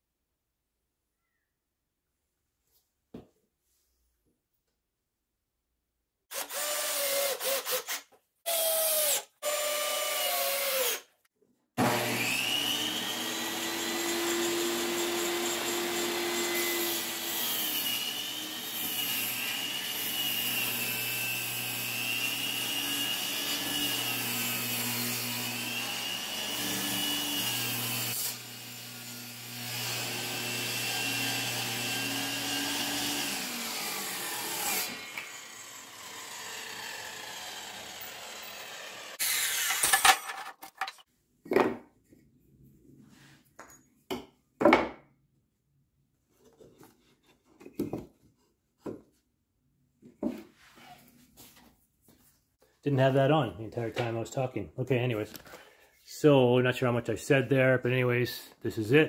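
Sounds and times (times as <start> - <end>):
power saw cutting wood: 6.3 - 11.1, 11.8 - 40.2.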